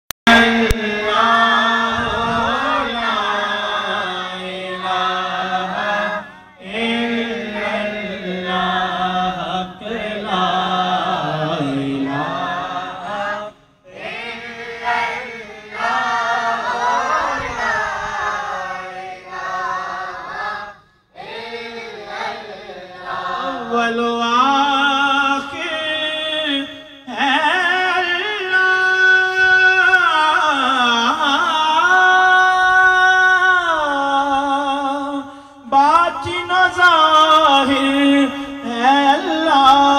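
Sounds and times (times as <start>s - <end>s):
man singing into a microphone: 0.2s - 14.0s, 23.4s - 39.9s
boys singing along: 0.3s - 26.6s.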